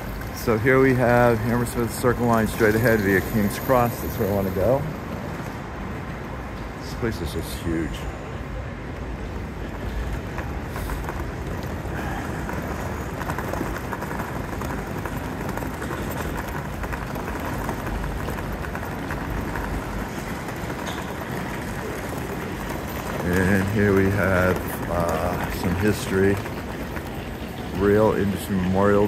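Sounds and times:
traffic rumble and hiss: 0.0s - 29.0s
crowd murmur: 7.2s - 29.0s.

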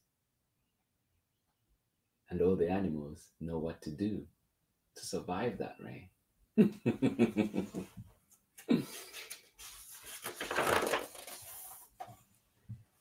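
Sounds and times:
man laughing: 6.6s - 8.0s
book page turning: 9.0s - 12.2s.

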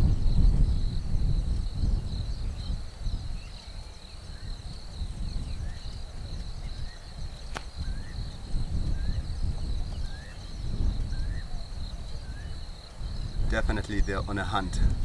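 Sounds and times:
insect drone: 0.0s - 15.0s
sharp click: 7.5s - 7.7s.

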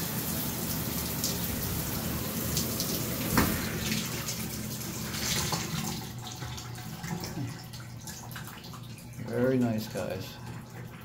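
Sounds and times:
shower water running into bathtub: 0.0s - 11.0s
water trickling from tub spout: 0.0s - 11.0s.

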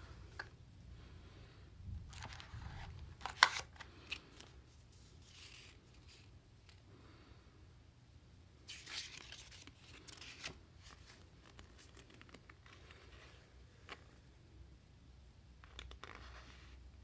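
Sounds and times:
packaging rustling and tearing: 2.1s - 4.5s.

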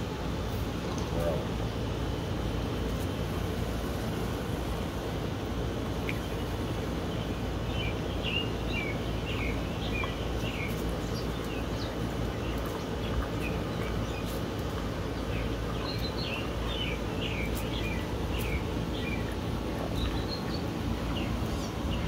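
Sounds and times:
outdoor background noise: 0.0s - 22.0s
bird chirping: 6.1s - 22.0s.

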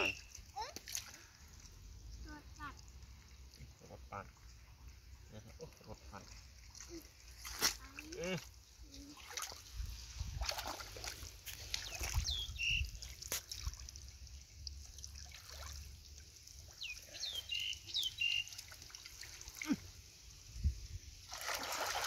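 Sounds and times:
short high chirps: 0.0s - 0.4s
hands splashing in muddy water: 6.2s - 8.4s, 9.1s - 14.1s, 21.3s - 22.0s.

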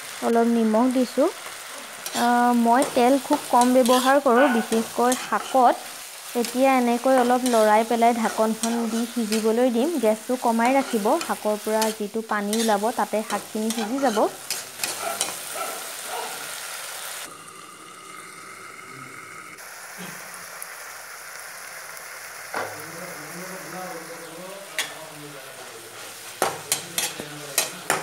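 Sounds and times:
greens sizzling in a wok: 0.0s - 28.0s
metal spatula scraping a pan: 1.8s - 9.6s, 10.5s - 15.5s, 25.6s - 28.0s.

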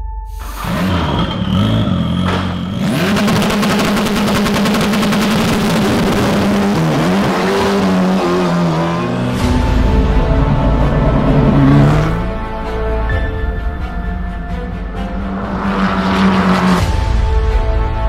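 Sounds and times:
race car engine revving: 0.4s - 12.6s, 14.9s - 17.1s.

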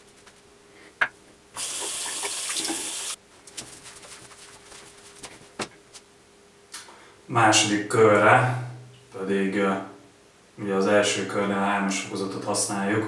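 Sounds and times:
water tap running: 1.6s - 3.2s.

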